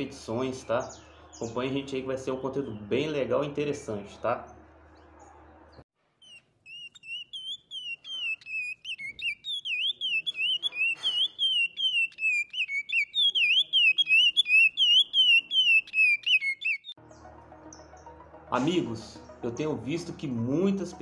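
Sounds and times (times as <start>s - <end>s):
finch singing whistled notes: 0.3s - 3.2s, 6.2s - 18.0s.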